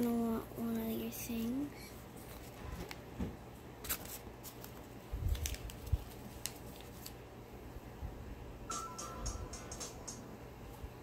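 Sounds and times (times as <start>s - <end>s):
paper rustling and clicks: 3.8s - 7.2s.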